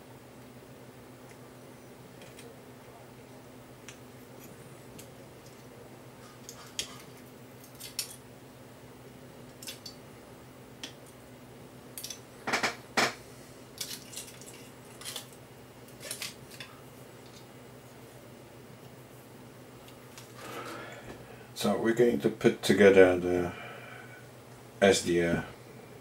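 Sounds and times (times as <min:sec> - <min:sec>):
aluminium foil crinkling: 0:13.8 - 0:17.5.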